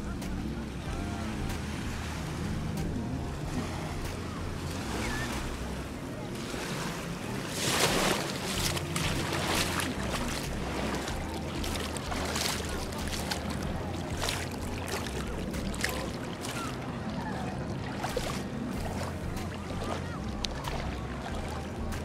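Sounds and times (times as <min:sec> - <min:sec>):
steady low rumble: 0:00.0 - 0:06.3, 0:07.0 - 0:22.0
seawater splashing around leg: 0:01.2 - 0:22.0.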